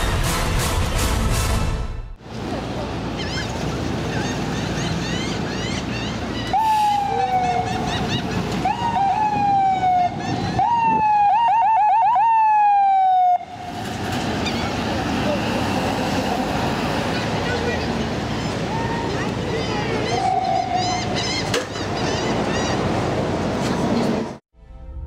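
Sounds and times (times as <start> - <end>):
traffic noise: 0.0 - 24.4
siren chirps: 6.5 - 7.8, 8.6 - 13.5
ambulance siren wailing: 6.5 - 7.9, 8.6 - 13.6.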